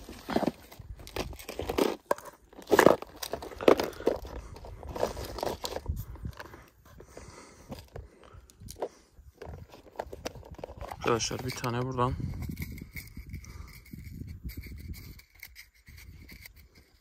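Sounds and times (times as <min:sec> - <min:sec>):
footsteps on stony ground: 0:00.0 - 0:13.5
plastic box being handled: 0:00.0 - 0:17.0.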